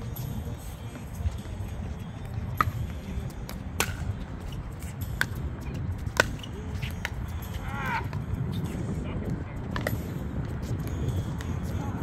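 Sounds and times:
steady low rumble: 0.0s - 12.0s
paddles striking ball: 2.5s - 4.2s, 5.1s - 7.3s.

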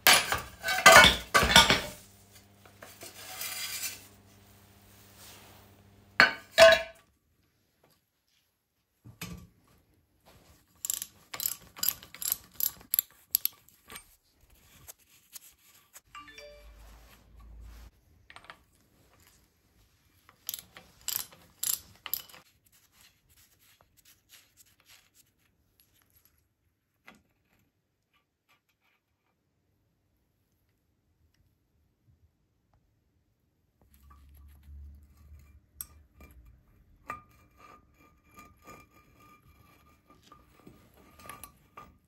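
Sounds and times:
ratchet clicking: 10.8s - 13.5s, 20.5s - 22.4s
metal handling: 10.8s - 14.2s, 20.4s - 22.4s.

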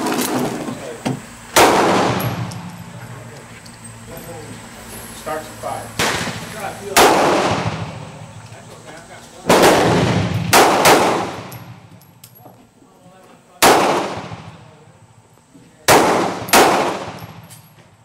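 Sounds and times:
revolver shots ringing out: 1.5s - 2.7s, 6.0s - 8.2s.

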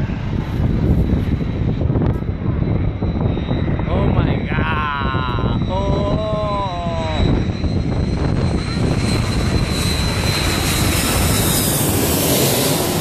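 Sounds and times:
jet engines passing overhead: 0.0s - 13.0s.

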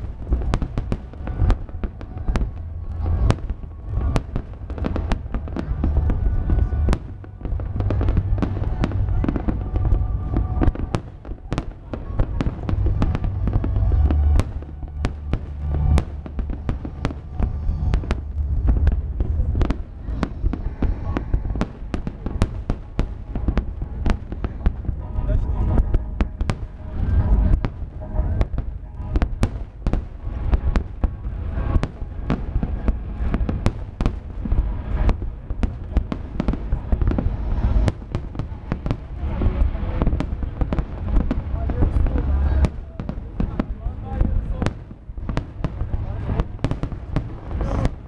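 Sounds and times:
continuous low rumble: 0.0s - 48.0s
firework bangs and crackles: 0.0s - 48.0s.

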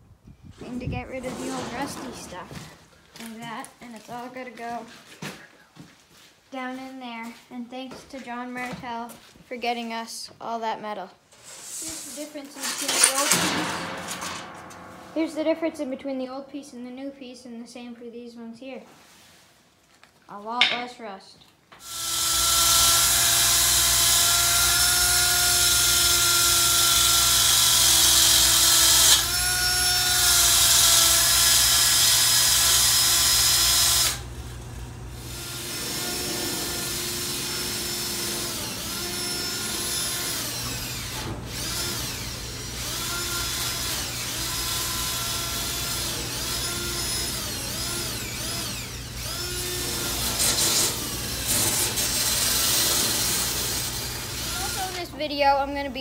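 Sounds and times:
power tool on sheet metal: 11.9s - 15.0s, 21.8s - 55.1s.

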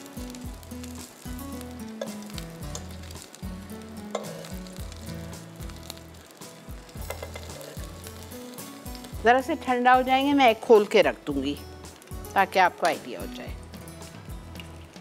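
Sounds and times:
oil sizzling in a frying pan: 0.0s - 15.0s
fork clicking against pan: 4.1s - 4.5s, 7.1s - 7.6s.

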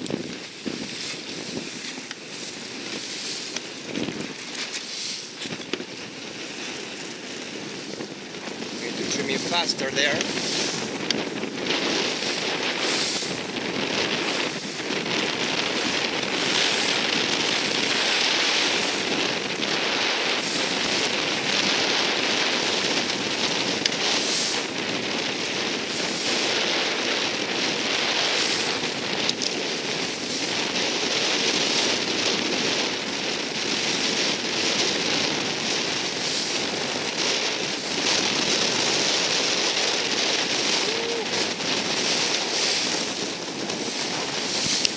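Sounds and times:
water rushing and splashing: 0.0s - 44.9s
wind buffeting microphone: 0.0s - 44.9s
spray crackles: 8.8s - 13.4s, 35.3s - 44.9s.

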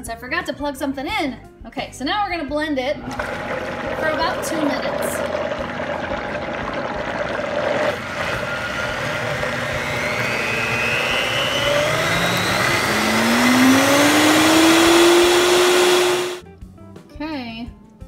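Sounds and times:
blender motor whining: 3.0s - 16.4s.

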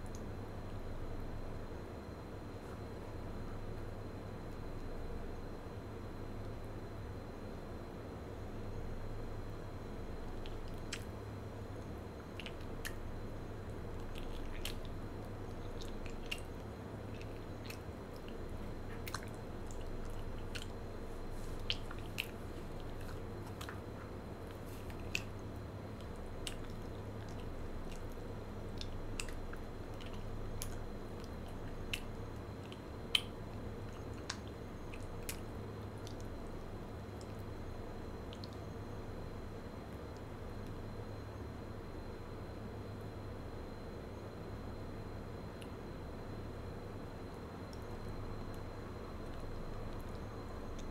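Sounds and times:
close-miked chewing: 10.3s - 11.2s, 11.8s - 37.6s, 47.7s - 50.9s.

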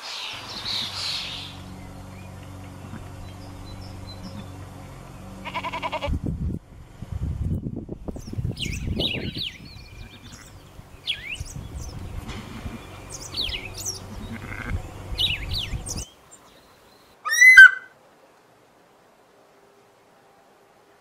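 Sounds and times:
songbirds chirping: 0.0s - 18.4s
quavering animal call: 0.1s - 6.2s, 9.9s - 11.5s, 12.2s - 16.0s, 17.2s - 18.0s
low wind rumble: 0.3s - 16.1s.

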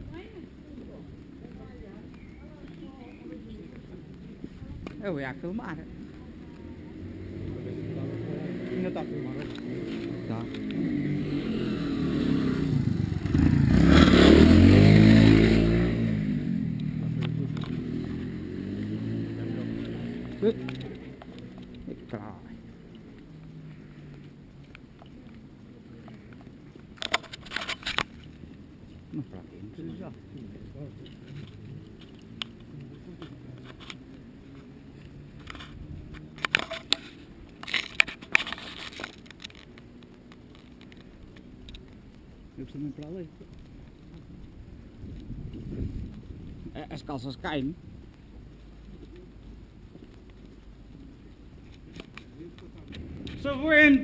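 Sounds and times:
camera handling noise: 26.9s - 28.4s, 31.0s - 34.1s, 35.4s - 42.0s, 51.6s - 53.4s.

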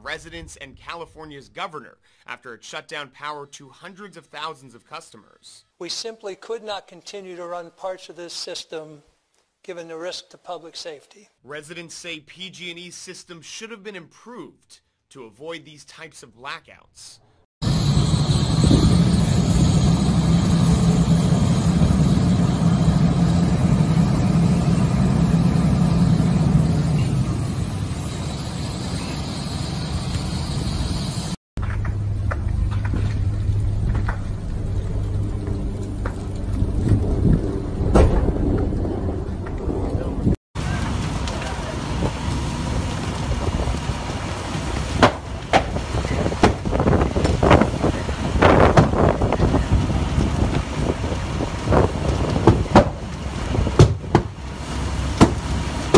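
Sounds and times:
fire engine engine droning: 17.6s - 55.9s.

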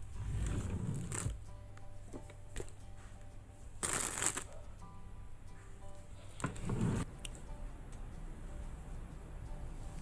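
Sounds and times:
faint background music: 0.0s - 10.0s.

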